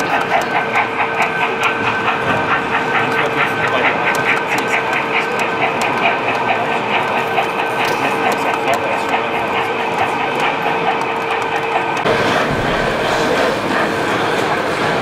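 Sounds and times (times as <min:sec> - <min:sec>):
model train electric hum: 0:00.0 - 0:15.0
rhythmic ticking: 0:00.0 - 0:15.0.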